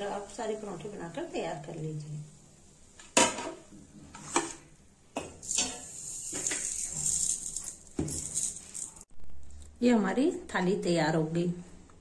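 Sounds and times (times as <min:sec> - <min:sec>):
faint high hiss: 0:00.0 - 0:09.1.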